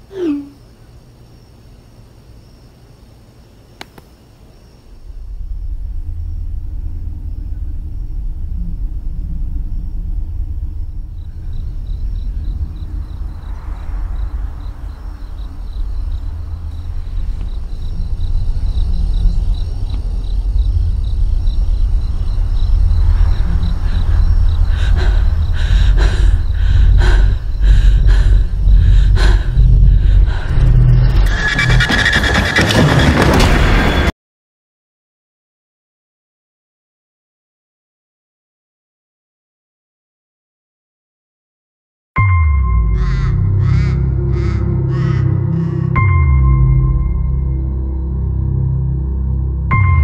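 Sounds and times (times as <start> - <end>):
low rumbling drone: 4.9 - 31.9, 42.2 - 50.0.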